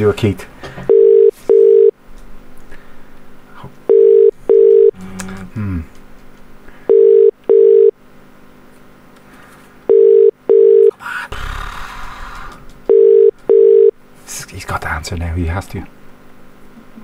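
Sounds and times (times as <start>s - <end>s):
telephone ringback tone: 0.9s - 1.9s, 3.9s - 5.0s, 6.9s - 7.9s, 9.9s - 10.9s, 12.9s - 13.9s.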